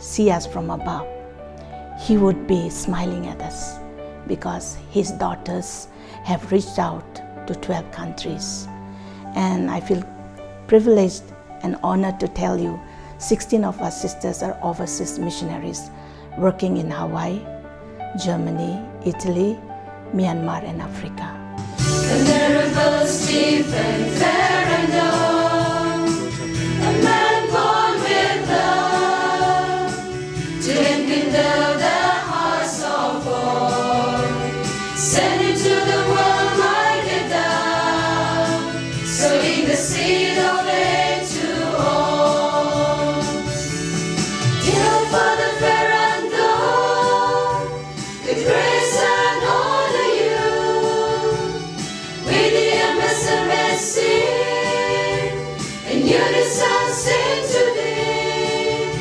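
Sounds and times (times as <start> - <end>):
choir singing a hymn: 21.8 - 59.0.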